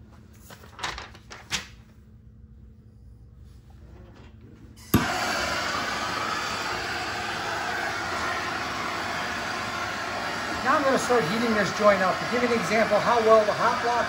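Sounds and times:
torch igniting pop: 4.8s - 6.4s
torch flame hissing: 4.8s - 14.0s.

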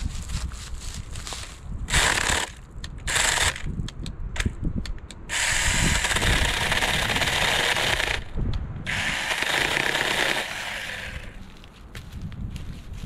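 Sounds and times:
electric chainsaw cutting branch: 1.9s - 3.7s, 5.3s - 8.3s, 8.9s - 11.4s.

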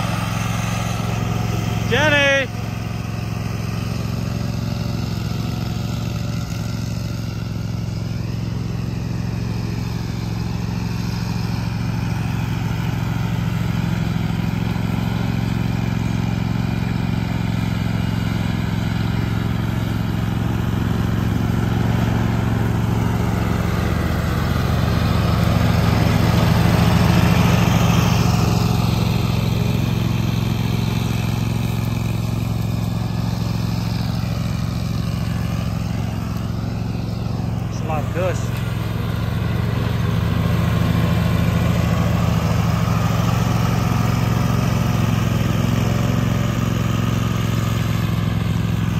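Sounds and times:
riding mower engine hum: 0.0s - 48.9s.

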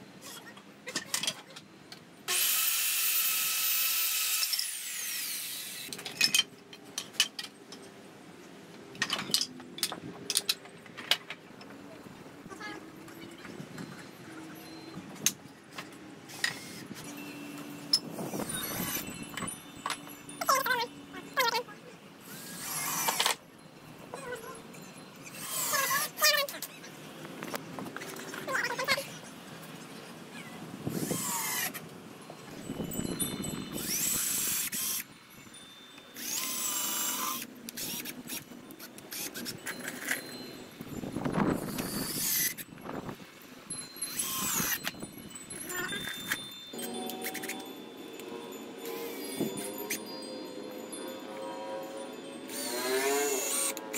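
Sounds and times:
cordless drill whining: 2.3s - 5.9s, 18.4s - 19.1s, 30.9s - 31.8s, 33.8s - 35.0s, 36.2s - 39.5s, 41.6s - 42.6s, 44.1s - 45.0s, 52.5s - 53.9s.

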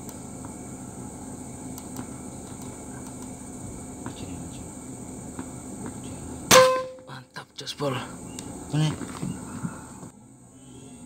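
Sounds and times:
high-pitched insect drone: 0.0s - 11.0s
air rifle shot with metallic ring: 6.5s - 7.0s.

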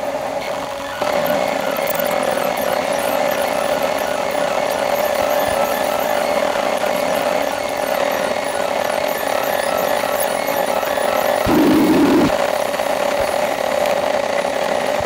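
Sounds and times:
sped-up buzzing drone: 11.5s - 12.4s.

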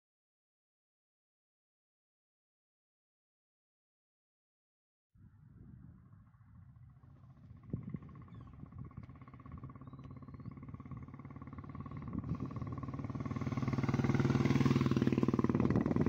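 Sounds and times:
motorcycle engine approaching: 5.3s - 16.0s.

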